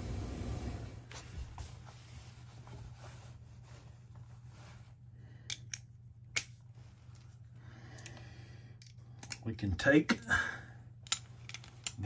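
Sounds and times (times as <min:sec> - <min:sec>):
steady low hum: 0:00.0 - 0:12.0
metallic clicks of hand tools: 0:08.8 - 0:09.5.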